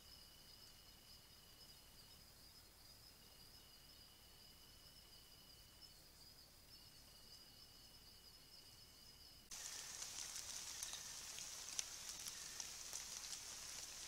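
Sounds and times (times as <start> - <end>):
high-pitched insect calls: 0.0 - 14.0
faint clicks: 9.5 - 14.0
high hiss: 9.5 - 14.0.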